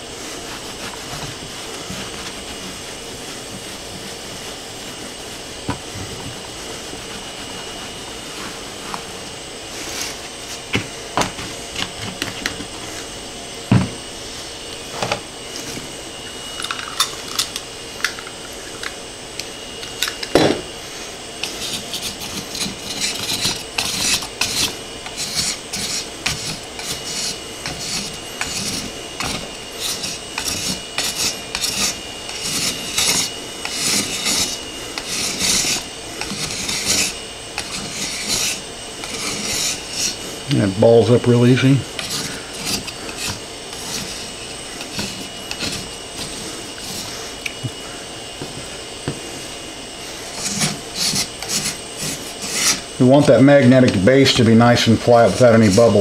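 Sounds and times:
razor blade scraping metal plate: 21.4 - 47.3, 50.1 - 56.0.

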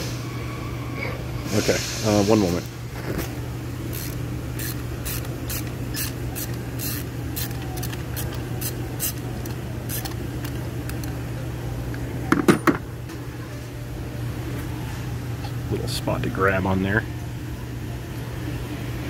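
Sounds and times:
ratchet clicking: 3.9 - 11.1.

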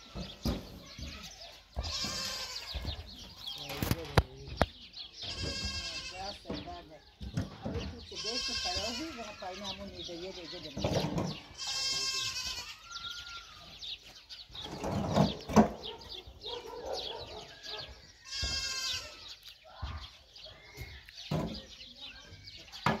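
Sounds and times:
goat bleating: 1.8 - 3.0, 5.2 - 6.4, 8.0 - 10.1, 11.4 - 13.3, 18.2 - 19.4.

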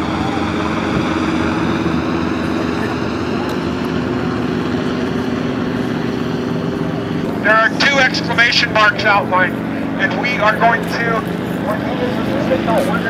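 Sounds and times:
helicopter drone: 0.0 - 13.0.

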